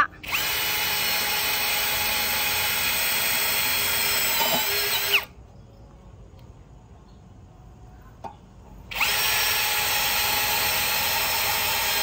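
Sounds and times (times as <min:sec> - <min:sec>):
cordless drill whining: 0:00.2 - 0:05.3, 0:08.9 - 0:12.0.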